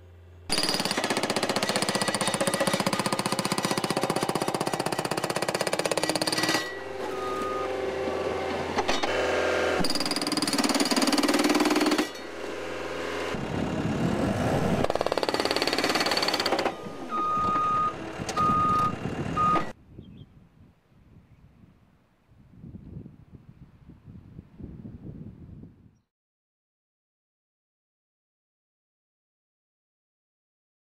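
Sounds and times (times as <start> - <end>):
loader engine running: 0.0 - 19.8
hydraulic hammer pounding concrete: 0.5 - 18.4
backup alarm beeping: 6.9 - 7.7, 16.8 - 19.8.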